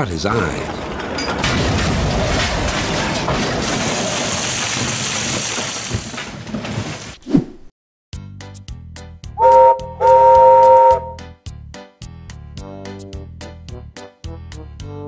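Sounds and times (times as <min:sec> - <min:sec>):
train crash rumble and rattle: 0:00.0 - 0:07.2.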